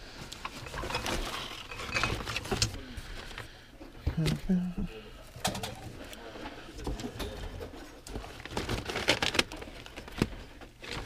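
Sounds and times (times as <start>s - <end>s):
metal tools clinking: 0.4s - 2.8s.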